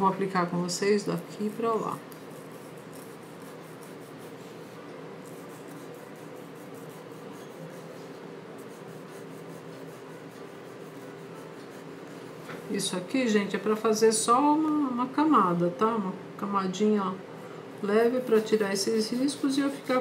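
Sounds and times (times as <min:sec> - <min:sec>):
paintbrush rubbing on paper: 0:01.3 - 0:12.9, 0:18.2 - 0:19.9.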